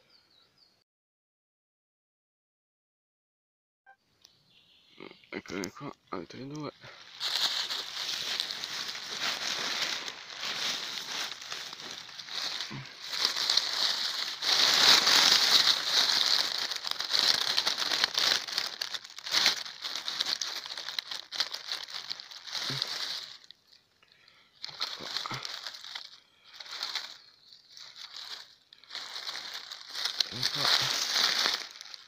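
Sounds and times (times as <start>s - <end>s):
dry leaves and grass rustling: 6.4s - 32.0s.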